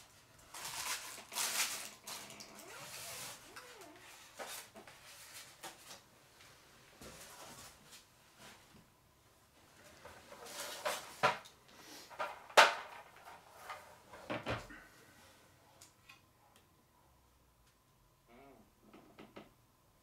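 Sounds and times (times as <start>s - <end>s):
packaging rustling: 0.4s - 5.9s.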